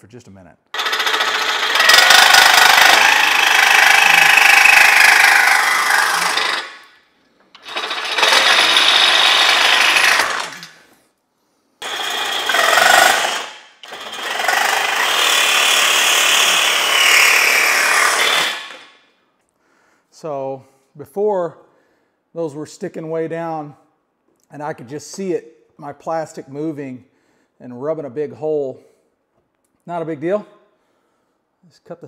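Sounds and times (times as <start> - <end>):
power cutting tool cutting metal: 0.8 - 7.0, 7.6 - 10.8, 11.8 - 18.9.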